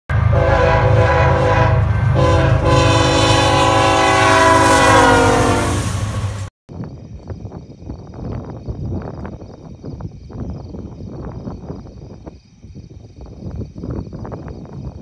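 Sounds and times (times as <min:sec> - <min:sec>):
locomotive air horn: 0:00.1 - 0:06.5.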